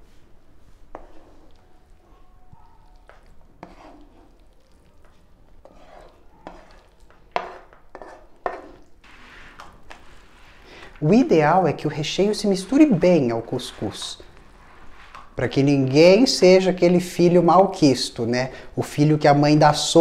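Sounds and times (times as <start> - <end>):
spatula scraping frying pan: 0.9 - 1.6, 3.0 - 4.5, 5.6 - 15.4.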